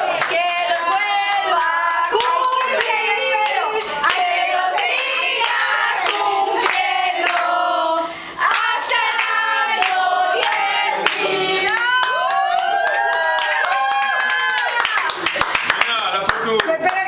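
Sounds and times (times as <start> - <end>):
group singing: 0.0 - 13.1
hand clapping: 5.0 - 7.5, 8.4 - 17.0.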